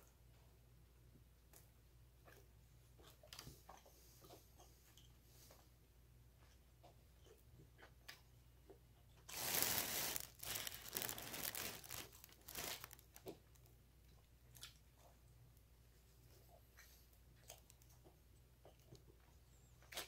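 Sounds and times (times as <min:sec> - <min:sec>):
plastic bag crinkling: 0:09.3 - 0:13.6.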